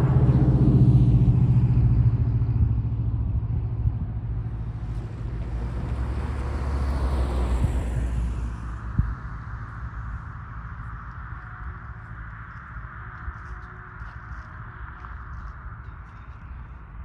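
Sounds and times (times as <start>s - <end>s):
car driving past: 0.0s - 11.4s
vehicle engine hum: 0.0s - 17.0s.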